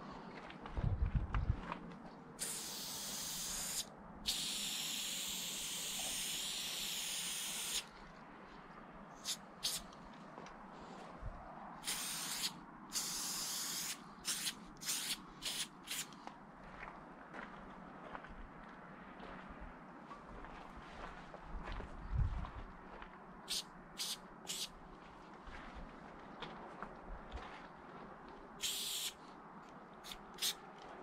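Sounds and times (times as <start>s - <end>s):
spray can hissing: 2.4s - 7.9s, 9.2s - 9.8s, 11.8s - 16.1s, 23.5s - 24.7s, 28.6s - 29.2s, 30.0s - 30.6s.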